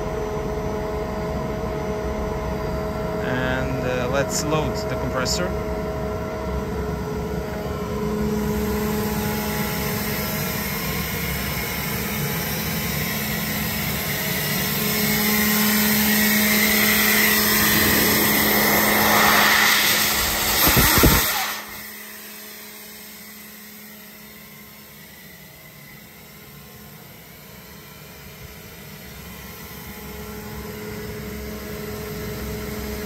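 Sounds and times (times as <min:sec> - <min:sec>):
air compressor hum: 0:14.0 - 0:22.0
rushing noise: 0:15.2 - 0:21.9.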